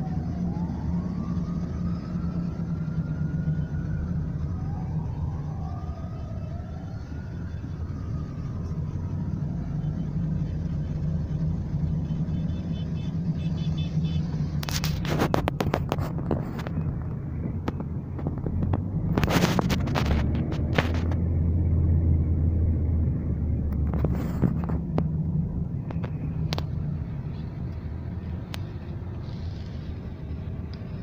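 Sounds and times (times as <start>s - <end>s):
car road rumble: 0.0s - 31.0s
faint siren wailing: 0.0s - 31.0s
crackling knocks on microphone: 14.7s - 21.2s.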